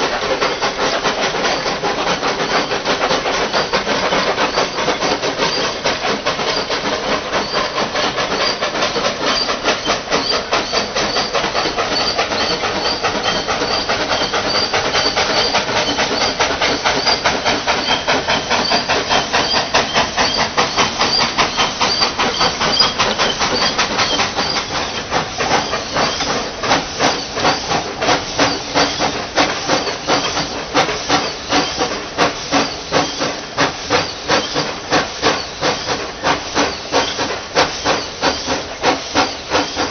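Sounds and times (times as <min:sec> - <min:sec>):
steam hissing: 0:00.0 - 0:39.9
steam locomotive chuffing: 0:00.0 - 0:39.9.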